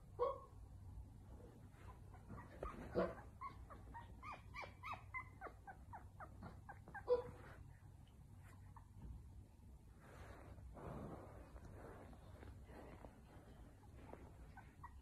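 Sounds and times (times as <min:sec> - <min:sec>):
puppy whimpering squeaks: 0:01.8 - 0:07.6, 0:14.1 - 0:15.0.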